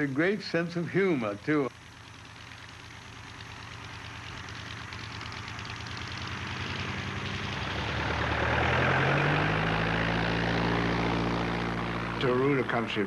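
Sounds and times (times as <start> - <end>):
propeller aircraft engine: 0.0 - 13.0.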